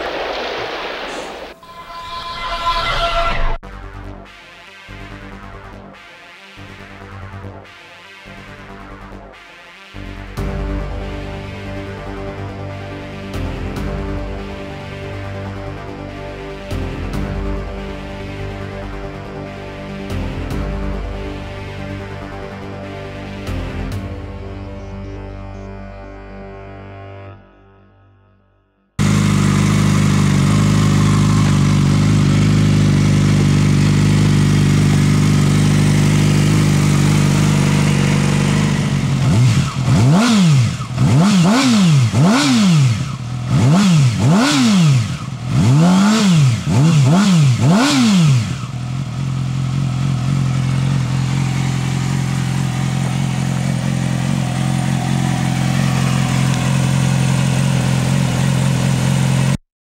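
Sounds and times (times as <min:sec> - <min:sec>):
motorcycle engine idling: 0:29.0 - 0:59.6
motorcycle engine revving: 0:29.0 - 0:59.6.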